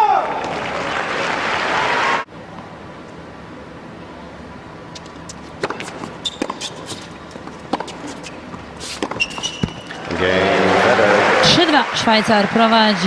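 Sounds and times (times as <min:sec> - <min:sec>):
shoe squeaks: 0:04.9 - 0:10.0
tennis racquets hitting ball: 0:04.9 - 0:10.2.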